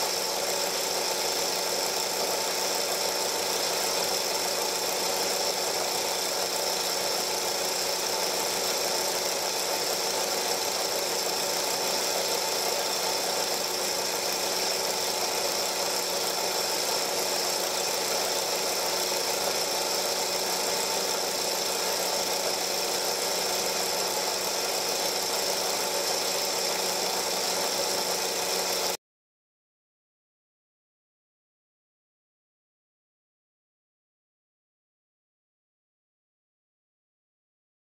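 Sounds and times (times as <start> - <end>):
film projector running: 0.0 - 29.0.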